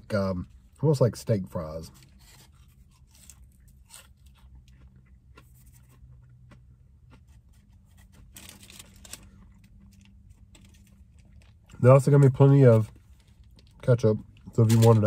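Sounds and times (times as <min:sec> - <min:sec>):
chewing french fry: 0:01.9 - 0:15.0.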